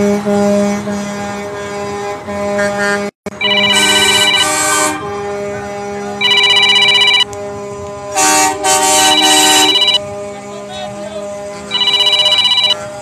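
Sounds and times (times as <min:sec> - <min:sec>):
electronic ringing alarm: 0:03.4 - 0:04.6, 0:06.2 - 0:07.3, 0:09.0 - 0:10.0, 0:11.7 - 0:12.8.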